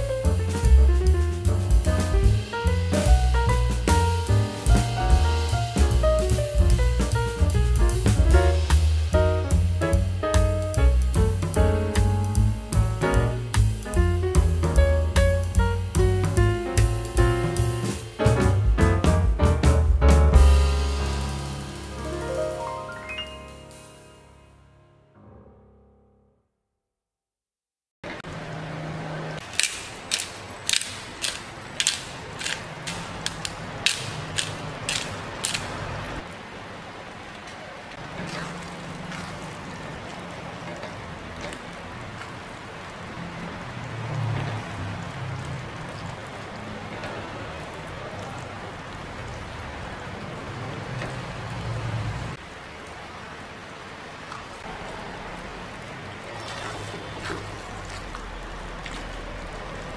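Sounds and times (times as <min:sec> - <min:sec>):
steady hiss with low hum: 0:00.0 - 0:23.8, 0:28.3 - 0:59.9
pepper grinder crunching clicks: 0:29.5 - 0:35.8.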